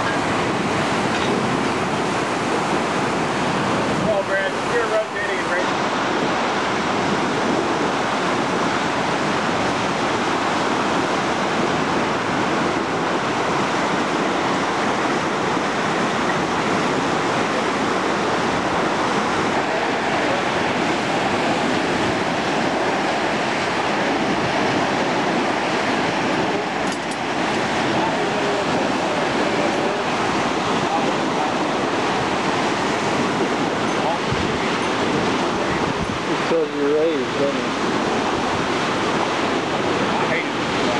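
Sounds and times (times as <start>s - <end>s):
seawater rushing along hull: 0.0s - 40.9s
wind: 0.0s - 40.9s.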